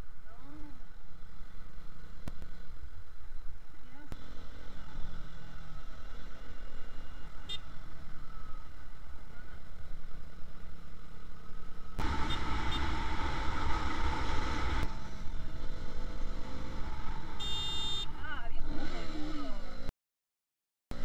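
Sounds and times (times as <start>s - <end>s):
wind rushing on camera: 11.5s - 17.4s.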